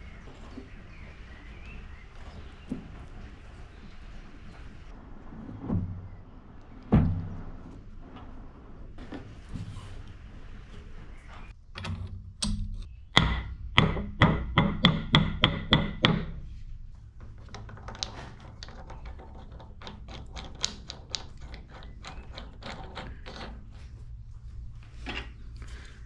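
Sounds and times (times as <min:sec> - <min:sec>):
sharp metal knocks: 0:11.7 - 0:16.4.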